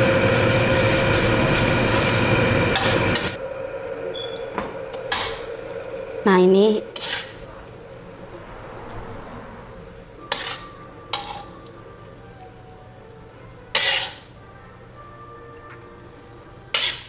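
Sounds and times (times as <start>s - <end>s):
sauce sizzling: 0.0s - 8.2s.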